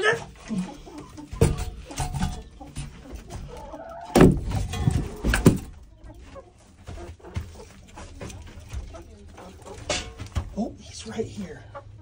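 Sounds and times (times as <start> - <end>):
thumps in wooden coop: 1.3 - 2.4, 4.1 - 5.8.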